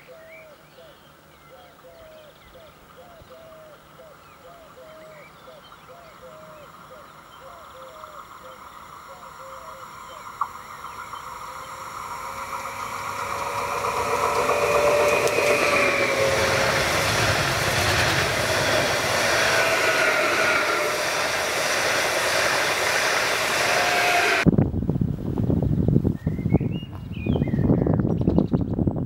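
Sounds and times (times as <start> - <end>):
faint traction motor whine: 3.2 - 24.5
train wheels rushing on rails: 7.9 - 24.5.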